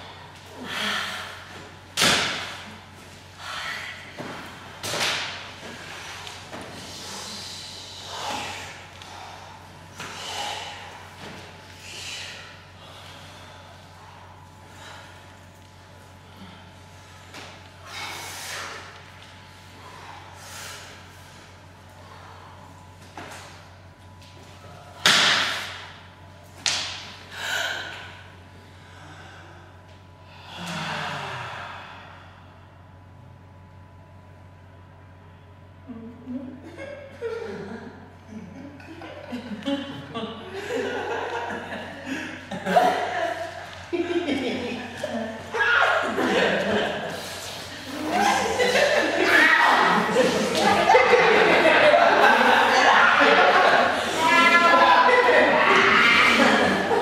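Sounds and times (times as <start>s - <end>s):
people breathing out loudly: 0.0s - 1.7s, 5.6s - 19.0s.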